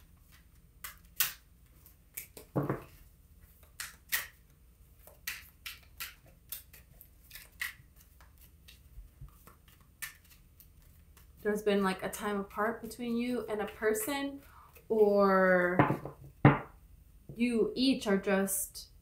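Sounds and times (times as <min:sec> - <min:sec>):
cards being shuffled: 0:00.1 - 0:11.5.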